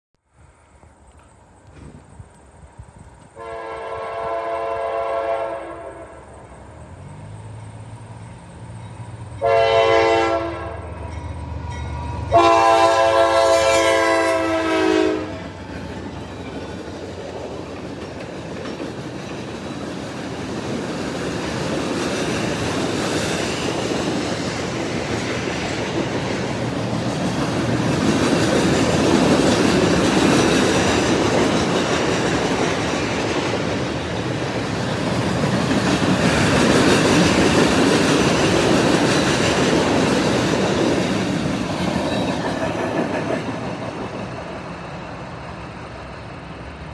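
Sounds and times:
locomotive horn: 3.4s - 6.3s, 9.4s - 11.0s, 12.3s - 15.6s
train wheels clattering: 15.5s - 45.8s.

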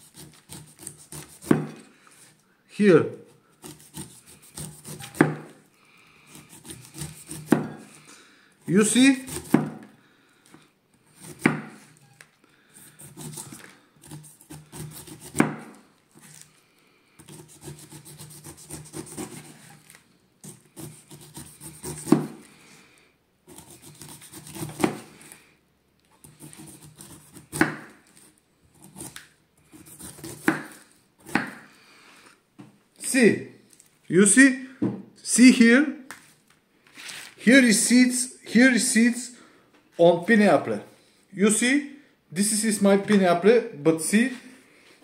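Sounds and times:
knife sawing through pineapple rind: 0.0s - 1.9s, 3.6s - 5.5s, 6.3s - 8.0s, 8.7s - 9.7s, 11.1s - 12.0s, 12.8s - 15.6s, 17.2s - 22.5s, 23.5s - 25.3s, 26.2s - 27.9s, 28.7s - 31.6s
knife knocking on board: 5.1s - 5.5s, 7.5s - 7.8s.

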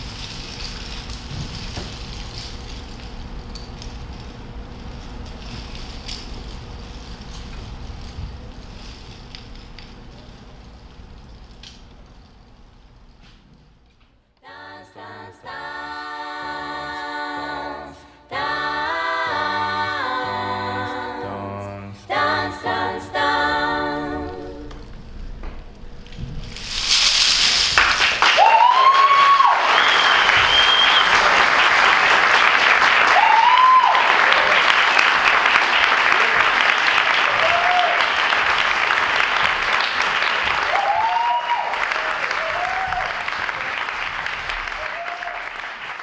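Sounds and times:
audience applauding: 27.5s - 46.0s
whoops and cheers: 28.2s - 31.3s, 33.0s - 34.7s, 37.2s - 38.2s, 40.6s - 43.7s, 44.7s - 45.6s.

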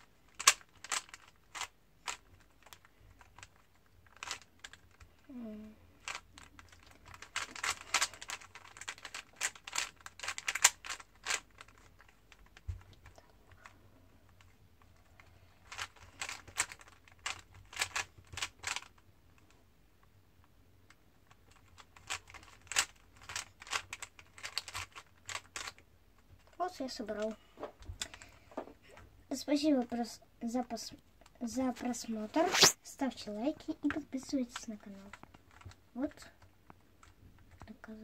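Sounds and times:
puzzle cube clicking: 0.3s - 5.1s, 6.0s - 13.7s, 15.6s - 19.5s, 21.3s - 25.8s, 32.4s - 32.8s.

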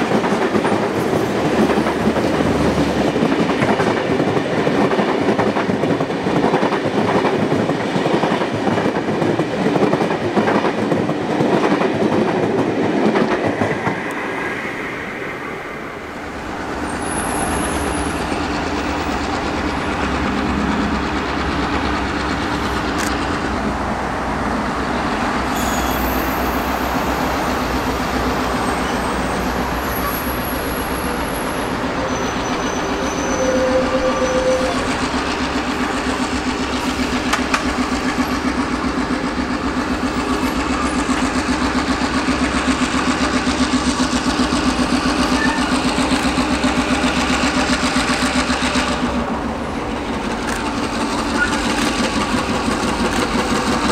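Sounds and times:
diesel locomotive rumble: 0.0s - 53.9s
wheels clicking over rail joints: 29.8s - 53.9s.

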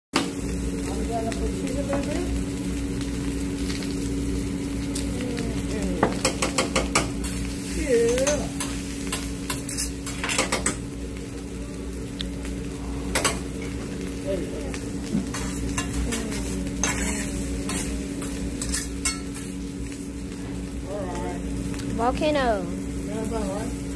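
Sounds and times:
rice sizzling on hot plate: 0.2s - 23.9s
metal spatulas clacking on griddle: 8.1s - 10.8s.

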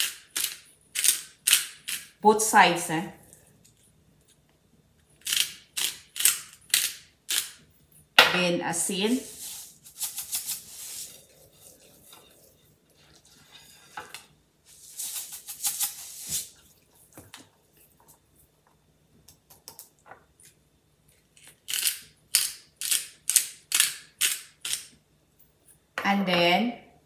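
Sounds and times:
hands rubbing fish: 9.2s - 12.5s, 14.7s - 18.0s
seasoning shaker rattling: 9.3s - 11.9s, 14.7s - 16.6s.

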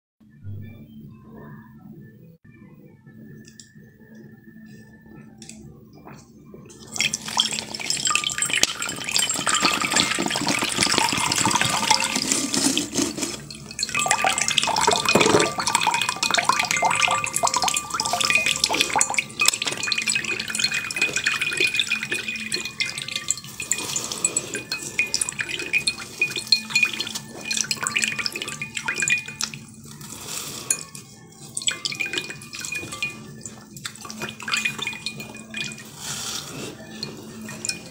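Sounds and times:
water dripping and trickling: 6.7s - 37.9s
plastic and ice crinkling: 6.9s - 28.5s.

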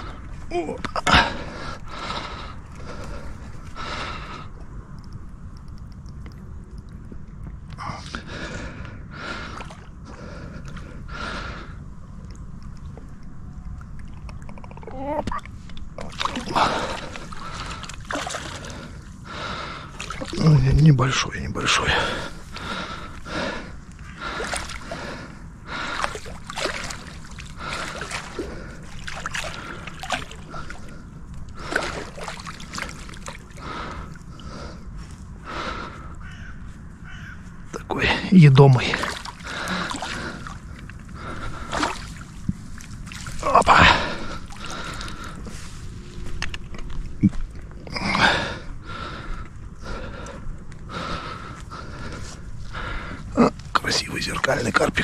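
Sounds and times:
person breathing hard: 1.0s - 4.7s, 7.8s - 11.9s, 16.4s - 20.2s, 21.8s - 26.8s, 27.5s - 32.5s, 33.5s - 36.3s, 39.4s - 42.2s, 43.7s - 46.0s, 47.9s - 53.6s
fish thrashing in water: 16.0s - 19.0s, 24.2s - 25.2s, 25.8s - 34.2s, 38.8s - 45.4s.

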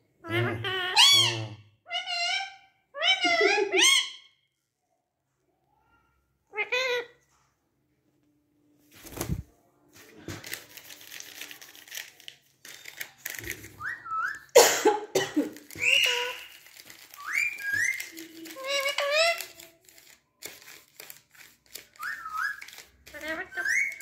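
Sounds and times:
rustling: 8.8s - 14.2s, 15.4s - 24.0s
parakeets calling: 15.8s - 16.6s, 22.0s - 24.0s.

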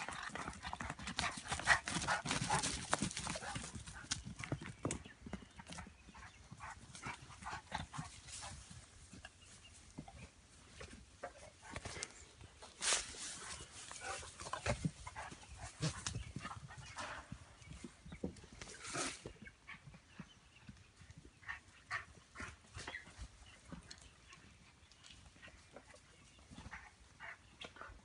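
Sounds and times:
animals scuffling: 0.0s - 19.5s.

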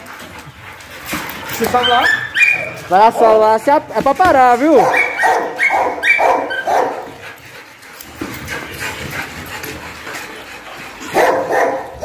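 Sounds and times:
dog whimpering: 1.5s - 3.5s, 4.6s - 7.1s
dog barking: 4.7s - 7.1s, 11.1s - 12.0s.

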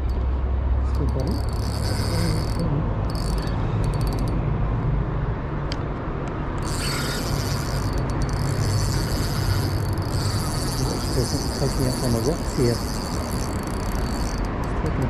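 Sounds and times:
crickets trilling: 0.9s - 4.4s, 6.6s - 14.8s.

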